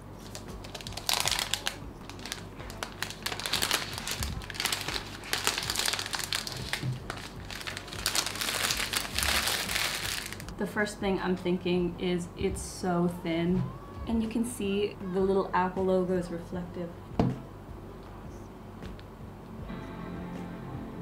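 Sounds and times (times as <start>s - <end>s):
plastic wrap crinkling: 0.1s - 10.6s.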